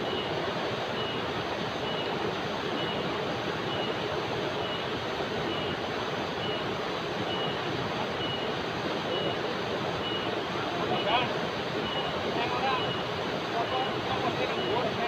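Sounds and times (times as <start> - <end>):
river rapids over rocks: 0.0 - 15.0.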